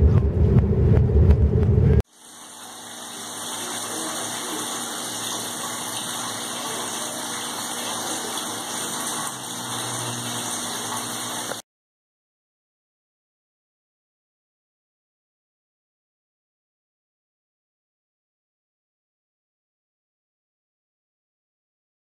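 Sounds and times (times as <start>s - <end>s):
car road rumble: 0.0s - 2.0s
faint pump hum: 2.1s - 11.6s
water trickling in fountain: 2.2s - 11.6s.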